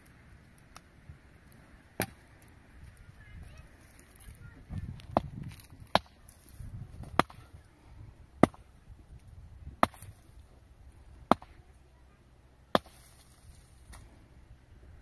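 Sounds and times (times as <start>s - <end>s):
hand tool striking hard material: 5.0s - 6.2s, 8.4s - 8.6s, 9.8s - 10.2s, 11.3s - 11.6s, 12.7s - 13.2s.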